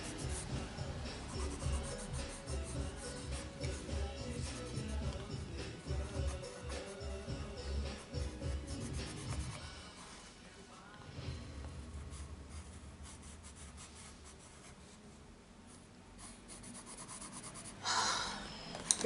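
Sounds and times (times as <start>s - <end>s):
colored pencil scratching on paper: 0.0s - 0.5s, 1.3s - 5.1s, 7.9s - 10.3s, 12.0s - 17.8s.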